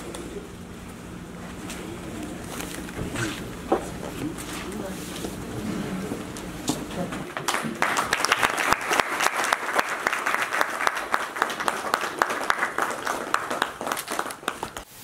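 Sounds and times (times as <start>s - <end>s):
group applauding: 7.1s - 14.9s.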